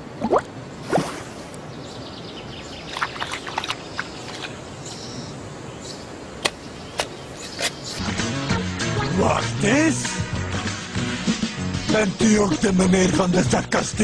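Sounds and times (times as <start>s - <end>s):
soft outdoor hiss: 0.0s - 8.1s
bird chirps: 1.7s - 8.0s.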